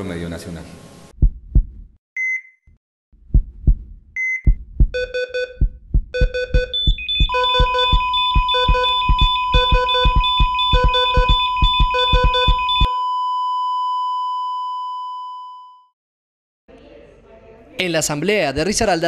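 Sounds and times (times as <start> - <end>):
heartbeat-like double thumps: 1.2 - 2.0, 3.2 - 12.9
short high beeps: 2.2 - 2.6, 6.2 - 12.9
pulsing synthesizer over beat: 4.5 - 12.9
sustained synth tone: 6.7 - 12.9.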